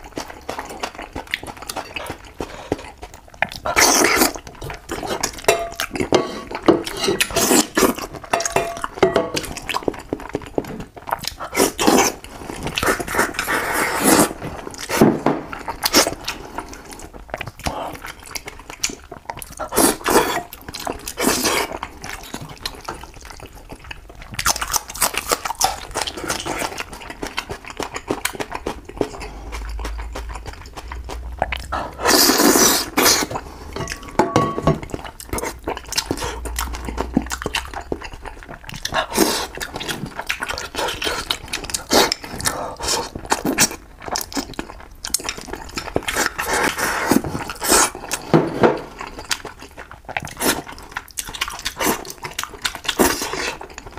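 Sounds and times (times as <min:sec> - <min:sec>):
wet chewing and lip smacks: 0:00.0 - 0:06.1, 0:06.8 - 0:34.2, 0:34.8 - 0:48.3, 0:48.9 - 0:53.9
slurping: 0:11.3 - 0:15.1, 0:25.6 - 0:34.2.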